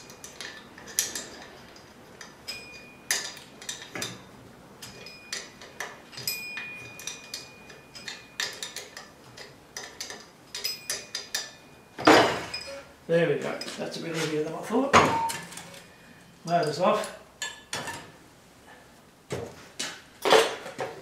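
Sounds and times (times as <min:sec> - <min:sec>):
allen key clicking on metal screws: 0:00.0 - 0:04.2, 0:04.8 - 0:11.6.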